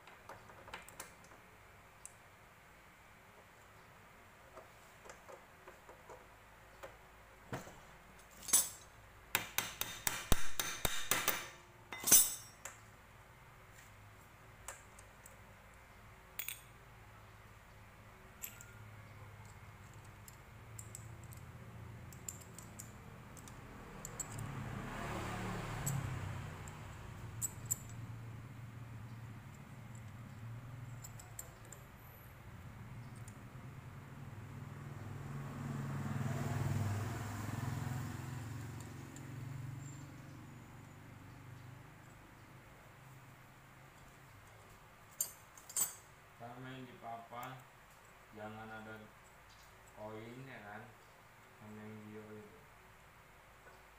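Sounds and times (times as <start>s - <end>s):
metal engine parts clinking: 8.2s - 9.0s, 9.8s - 12.8s, 16.4s - 16.8s, 18.4s - 18.8s, 19.4s - 24.6s, 25.7s - 28.2s, 29.0s - 32.0s, 43.9s - 46.1s.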